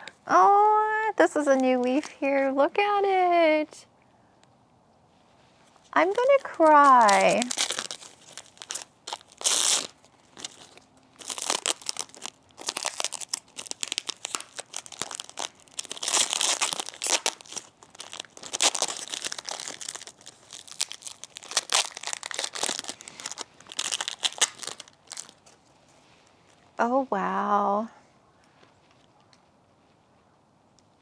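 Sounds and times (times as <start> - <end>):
plastic wrapping crinkling: 5.6 - 26.8.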